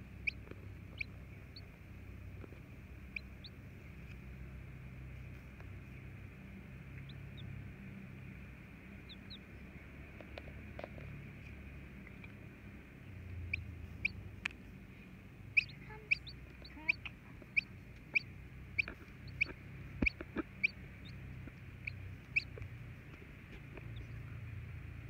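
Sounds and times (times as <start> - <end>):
chick peeping: 0.0 - 1.8, 2.4 - 4.2, 9.0 - 10.5, 13.4 - 14.2, 15.5 - 24.4.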